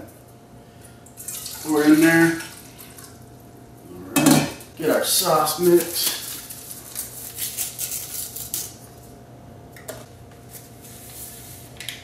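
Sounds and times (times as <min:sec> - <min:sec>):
low steady hum: 0:00.0 - 0:12.0
foil pouch crinkling: 0:05.2 - 0:08.8.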